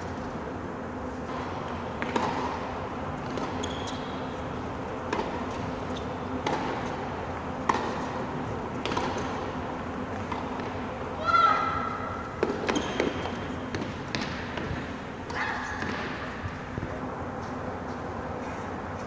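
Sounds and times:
tennis ball hits and bounces: 0:01.3 - 0:02.6, 0:06.4 - 0:06.9, 0:07.6 - 0:08.2, 0:08.8 - 0:09.4, 0:12.4 - 0:16.2.

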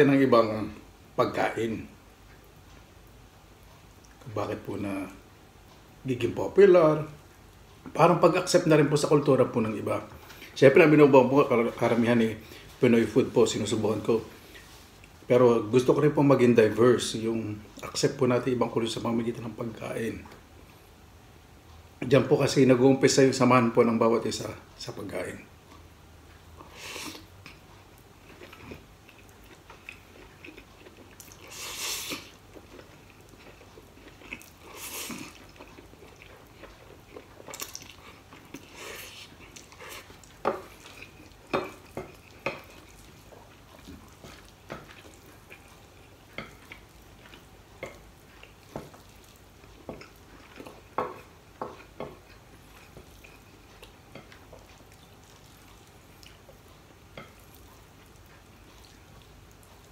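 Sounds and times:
chewing: 0:25.6 - 0:59.9.

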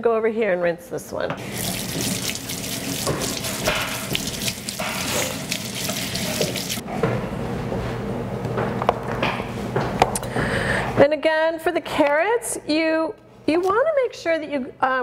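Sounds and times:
brush scrubbing a carrot: 0:01.4 - 0:06.8
tap running into a steel sink: 0:01.4 - 0:06.8.

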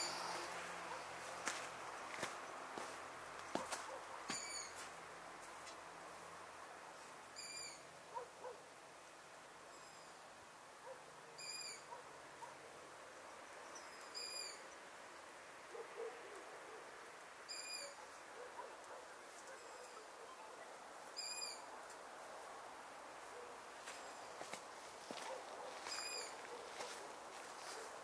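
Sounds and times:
faint steady hiss: 0:00.0 - 0:28.0
small owl calling: 0:04.3 - 0:04.8, 0:07.4 - 0:07.9, 0:11.4 - 0:11.9, 0:14.1 - 0:14.6, 0:17.5 - 0:18.1, 0:21.2 - 0:21.7, 0:25.7 - 0:27.0.

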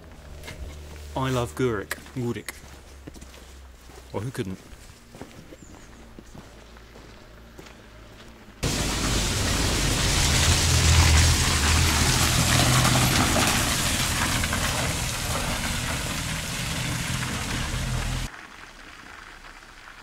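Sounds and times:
vehicle engine running: 0:06.2 - 0:18.3.

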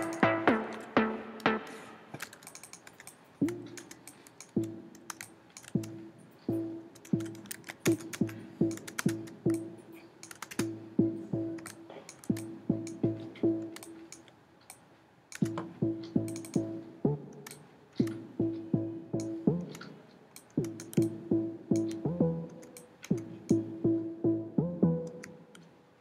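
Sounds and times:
synth short notes: 0:00.0 - 0:02.1
mouse and keyboard clicks: 0:01.7 - 0:06.0, 0:07.0 - 0:10.8, 0:11.6 - 0:16.7, 0:17.3 - 0:18.6, 0:19.2 - 0:21.2, 0:21.8 - 0:23.6.

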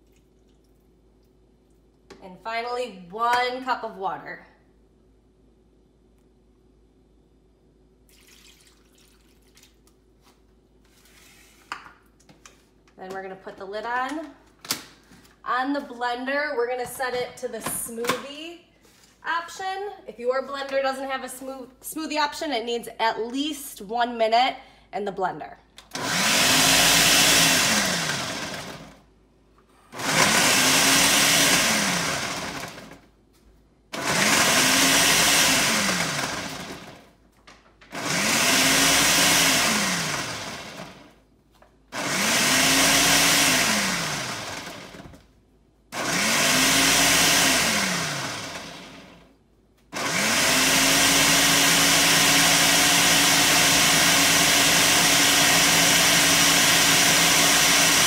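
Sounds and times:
blender motor pulsing: 0:25.9 - 0:29.0, 0:29.9 - 0:33.0, 0:34.0 - 0:37.0, 0:37.9 - 0:41.1, 0:41.9 - 0:45.1, 0:46.0 - 0:49.3, 0:50.0 - 0:58.0.

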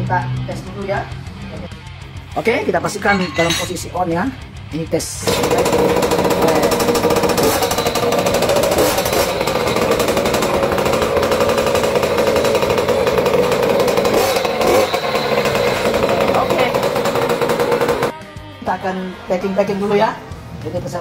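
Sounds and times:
two-stroke engine buzzing: 0:05.2 - 0:18.2.

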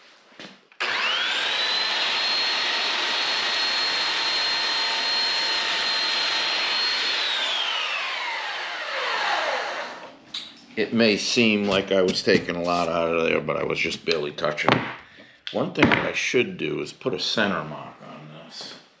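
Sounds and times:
belt sander whining: 0:00.8 - 0:10.2.

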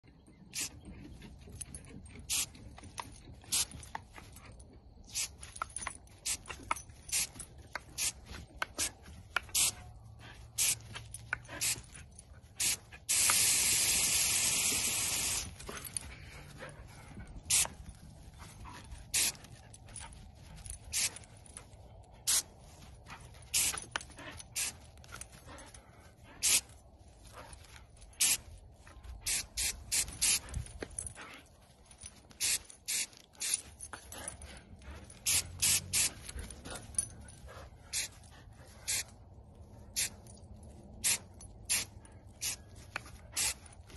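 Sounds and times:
water jet spraying over grass: 0:12.6 - 0:15.5, 0:35.3 - 0:36.2.

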